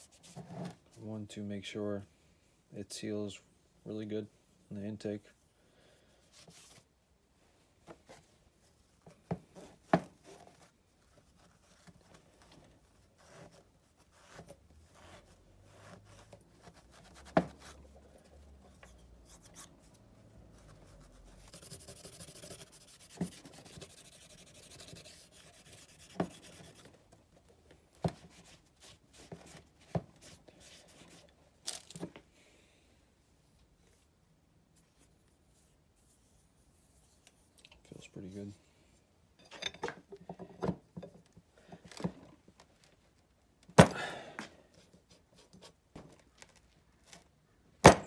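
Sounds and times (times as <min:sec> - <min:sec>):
rubbing noise: 0:18.8 - 0:26.9.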